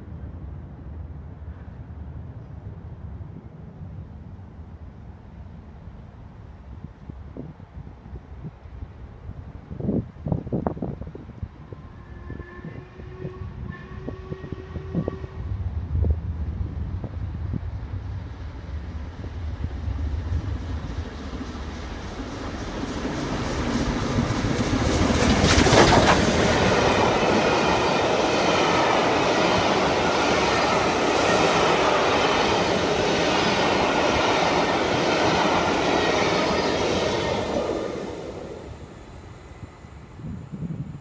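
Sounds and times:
steam locomotive passing at speed: 0:11.6 - 0:41.0
train wheels clattering on rails: 0:20.2 - 0:37.8.

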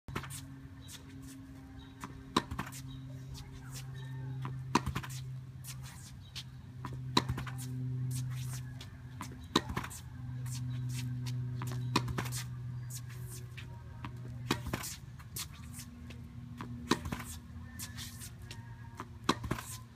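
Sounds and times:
low hum: 0:00.1 - 0:19.9.

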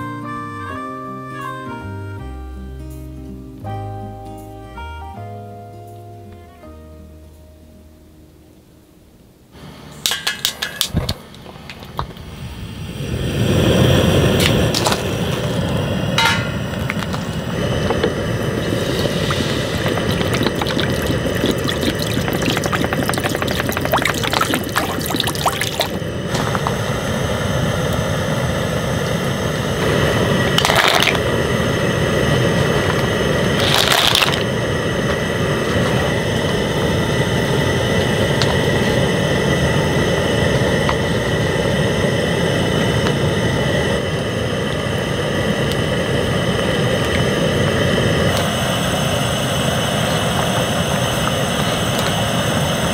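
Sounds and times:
gas stove burner roaring: 0:09.5 - 0:52.9
soup bubbling at a boil: 0:10.2 - 0:52.9
knocks and splashes: 0:19.8 - 0:26.0.

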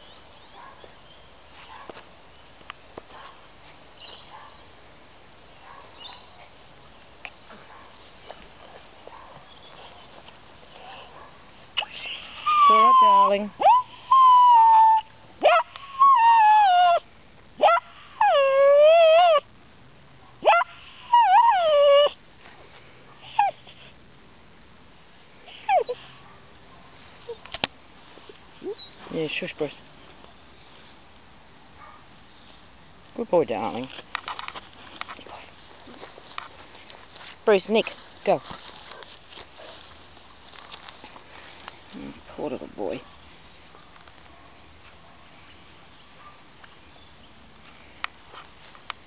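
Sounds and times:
scuffling in dry grass: 0:05.7 - 0:13.4, 0:26.2 - 0:31.1, 0:33.6 - 0:47.0, 0:47.6 - 0:49.0
dog whining faintly: 0:11.8 - 0:17.0, 0:25.5 - 0:26.2.

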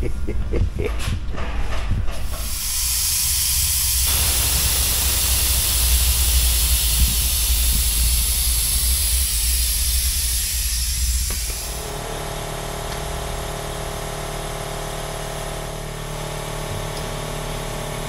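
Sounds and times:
low steady hum: 0:00.0 - 0:02.2
compressed air hissing: 0:02.2 - 0:12.0.

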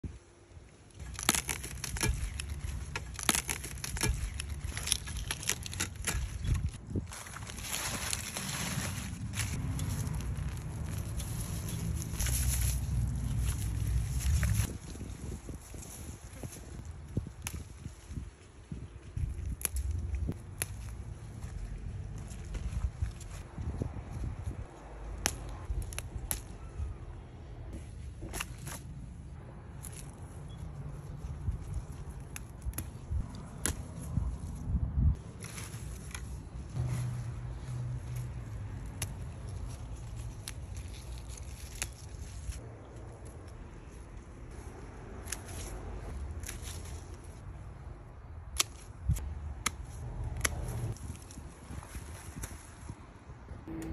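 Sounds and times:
leaves rustling: 0:00.0 - 0:53.2
dry grass and plants crunching: 0:00.1 - 0:26.7, 0:27.7 - 0:53.3
wind rumble on microphone: 0:08.9 - 0:27.8, 0:30.6 - 0:35.3, 0:50.0 - 0:53.9.

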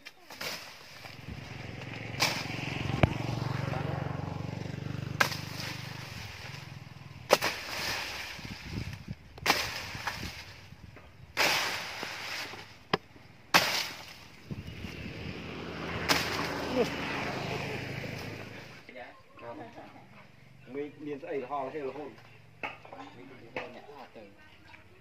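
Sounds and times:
leaves rustling and stems snapping: 0:00.0 - 0:03.5, 0:05.1 - 0:14.5, 0:16.0 - 0:17.0.

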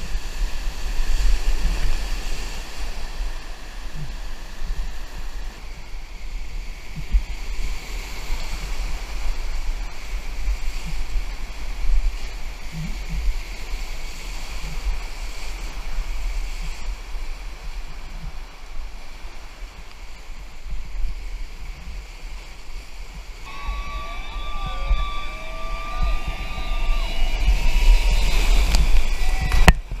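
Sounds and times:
wind buffeting microphone: 0:00.0 - 0:30.0
whitewater rapids rushing: 0:23.4 - 0:30.0.

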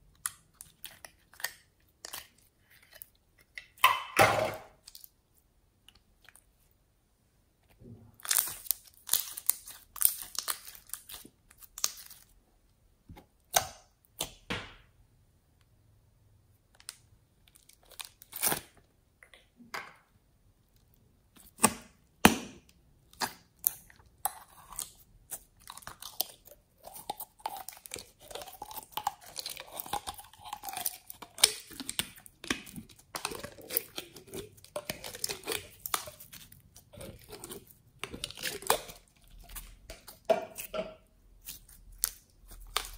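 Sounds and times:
slime squelching: 0:00.0 - 0:04.2, 0:07.7 - 0:12.4, 0:20.6 - 0:42.9.

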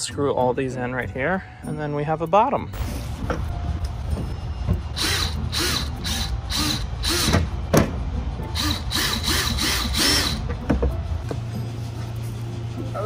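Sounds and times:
cordless drill whirring: 0:04.9 - 0:07.5, 0:08.6 - 0:10.4.

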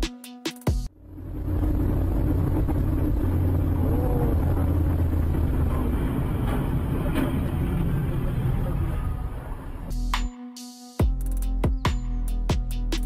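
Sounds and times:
car driving on wet road: 0:01.0 - 0:09.3.

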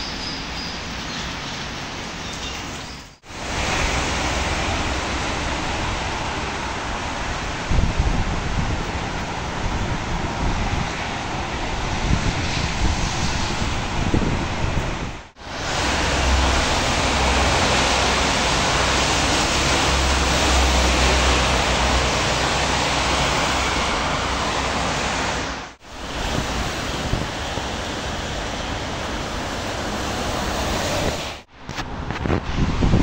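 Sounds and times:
wind and rain rushing: 0:00.0 - 0:33.0
wind buffeting microphone: 0:03.2 - 0:33.0.

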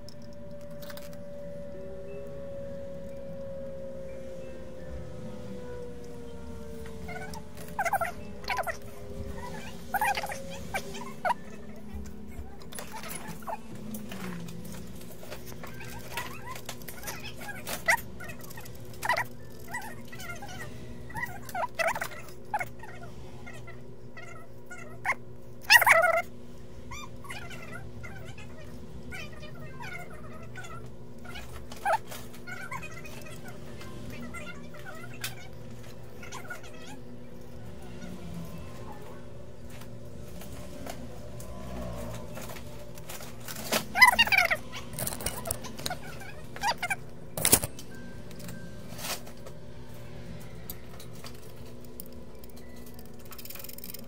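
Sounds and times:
low hum: 0:00.0 - 0:54.0
animals chirping: 0:07.1 - 0:14.0, 0:15.6 - 0:26.3, 0:43.9 - 0:47.0.

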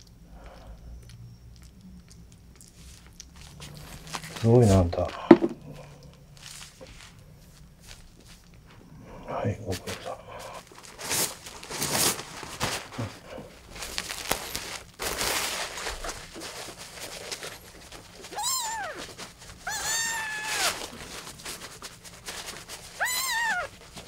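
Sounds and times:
rustling and handling noise: 0:02.7 - 0:08.9, 0:09.6 - 0:24.0
kitten meowing: 0:18.3 - 0:20.9, 0:23.0 - 0:23.7.

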